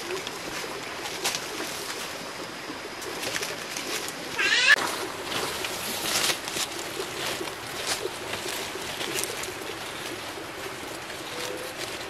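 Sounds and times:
footsteps through dry leaves: 3.4 - 12.0
warbling bird call: 4.2 - 4.8.

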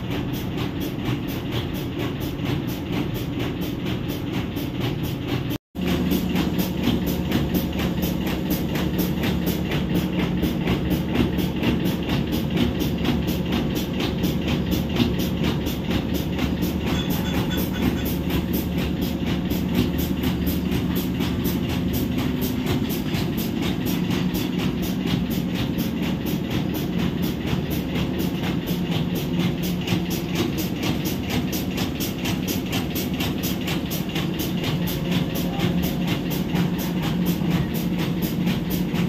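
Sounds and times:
excavator diesel engines droning: 14.9 - 24.6.

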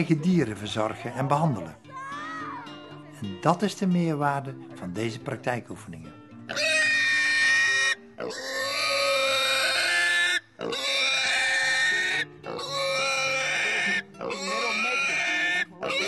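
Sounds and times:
pig squealing: 6.5 - 16.0.

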